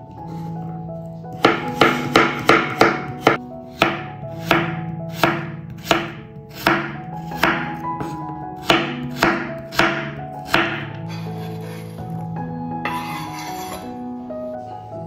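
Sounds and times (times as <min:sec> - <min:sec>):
blade knocking on wooden board: 0:01.4 - 0:10.9
knife slicing radishes: 0:01.4 - 0:11.7.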